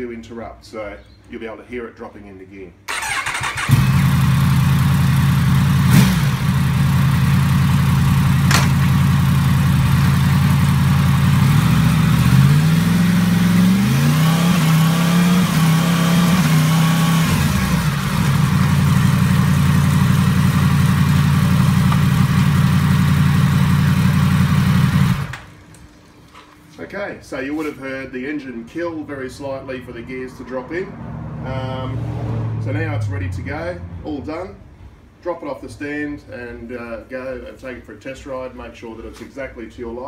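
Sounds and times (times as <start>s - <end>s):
motorcycle engine revving: 2.9s - 25.5s
sharp clunks: 8.4s - 9.0s.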